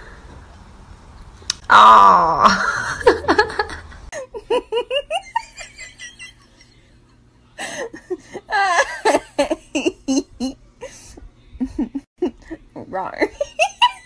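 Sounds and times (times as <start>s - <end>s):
person laughing hard: 2.5s - 6.6s.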